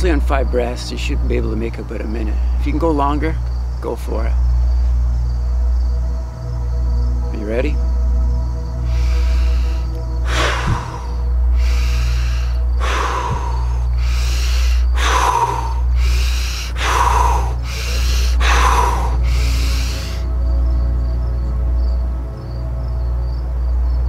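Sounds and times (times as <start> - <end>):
low ambient music drone: 0.0 - 24.0
man breathing deeply: 8.7 - 20.5.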